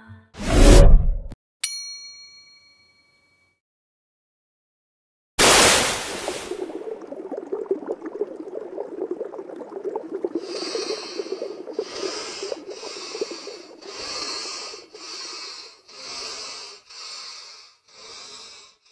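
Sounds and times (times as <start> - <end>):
underwater bubbling: 6.2 - 15.6
breathy hisses: 10.4 - 18.9.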